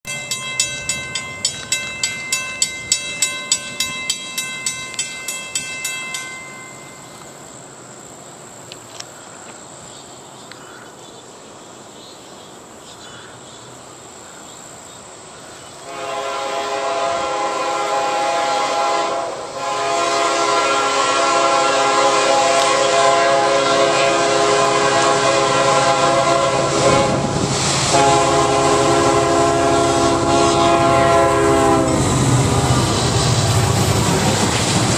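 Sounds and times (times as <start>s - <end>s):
crossing warning bell ringing: 0.1s - 7.5s
locomotive air horn blasts: 15.8s - 32.1s.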